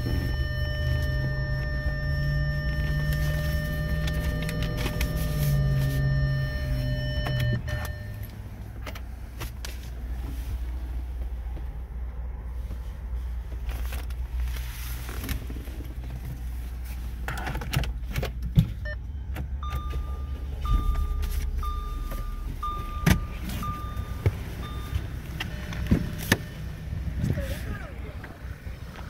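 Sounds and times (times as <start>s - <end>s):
car warning chime beeping: 0.0s - 8.8s, 18.8s - 27.1s
low car rumble: 0.0s - 29.0s.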